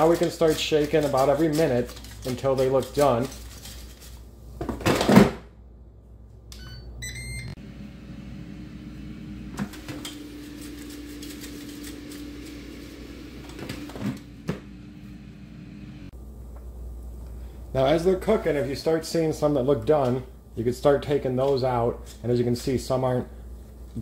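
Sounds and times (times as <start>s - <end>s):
air fryer beeping: 6.6s - 11.0s
air fryer fan humming: 7.0s - 21.3s.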